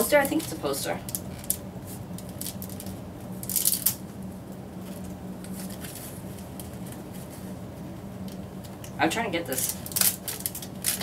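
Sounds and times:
sharp paper crinkle: 0:09.5 - 0:11.0.

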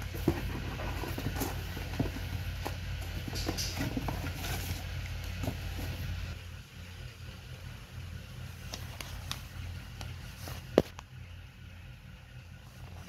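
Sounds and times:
cardboard and paper rustling: 0:00.0 - 0:06.2, 0:10.2 - 0:11.0
steady low hum: 0:00.0 - 0:13.0.

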